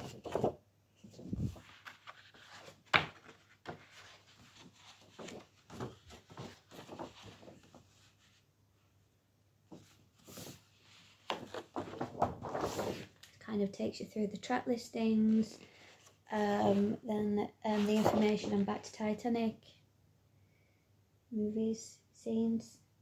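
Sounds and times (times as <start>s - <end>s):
paper rustling: 0.0s - 8.4s, 9.7s - 13.3s, 17.7s - 18.7s.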